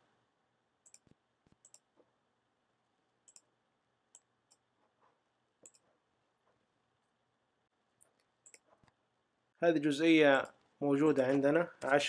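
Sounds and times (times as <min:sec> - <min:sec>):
computer mouse clicks: 0:00.8 - 0:02.0, 0:03.3 - 0:03.5, 0:05.6 - 0:05.9, 0:08.0 - 0:09.0.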